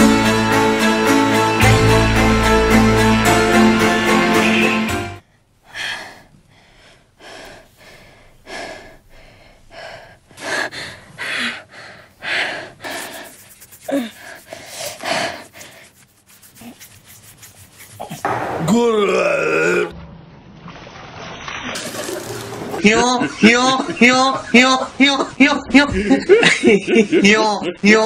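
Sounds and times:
orchestral music: 0.0 - 5.2
person breathing heavily: 5.3 - 16.0
faint moan: 18.8 - 20.0.

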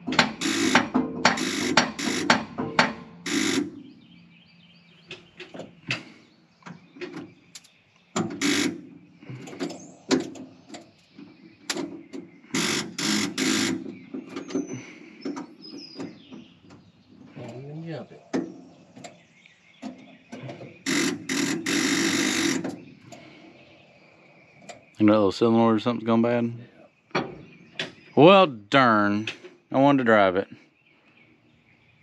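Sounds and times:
sharp metal knocks: 0.0 - 3.8, 27.1 - 28.0.

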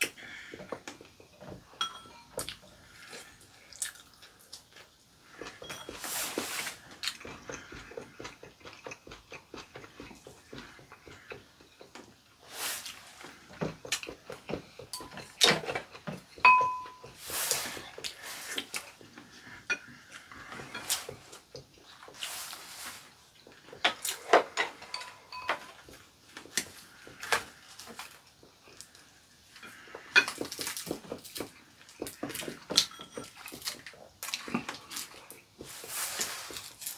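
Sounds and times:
chopsticks tapping ceramic bowls: 1.8 - 2.6, 14.8 - 17.2, 23.9 - 26.0
chewing and slurping: 2.3 - 36.9.

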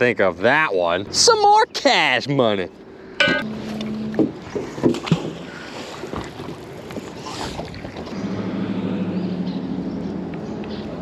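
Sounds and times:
wind: 0.0 - 11.0
water noise: 2.8 - 11.0.

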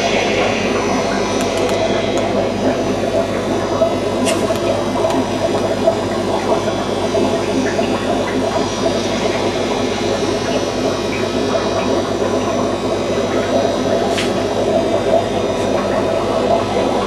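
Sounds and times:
aquarium pump humming: 0.0 - 17.0.

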